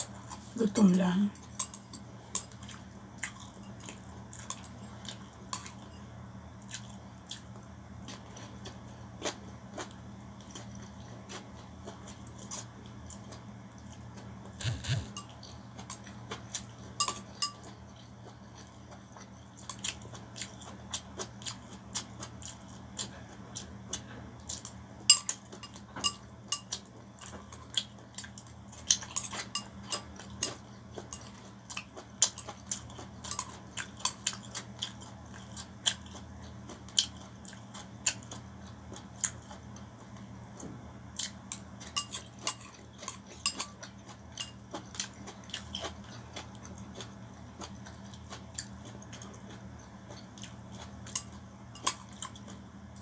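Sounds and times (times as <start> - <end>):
noodles being chewed: 0.0 - 53.0
steady low hum: 0.0 - 53.0
chopsticks scraping ceramic bowl: 14.6 - 15.2.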